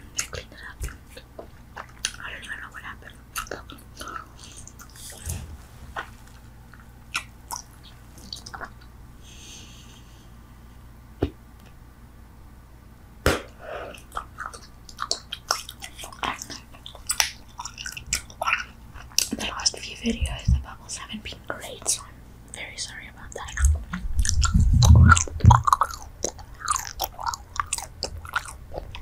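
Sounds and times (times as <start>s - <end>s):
gum chewing clicks and smacks: 0.1s - 5.2s, 6.7s - 8.9s, 13.9s - 20.8s, 23.3s - 29.0s.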